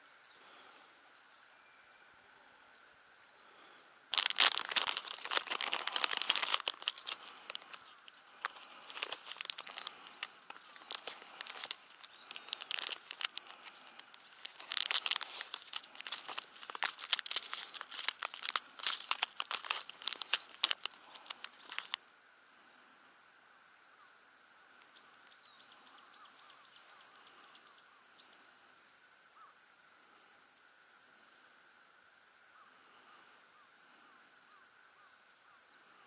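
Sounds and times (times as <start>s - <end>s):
plastic package crinkling: 4.1s - 22.0s.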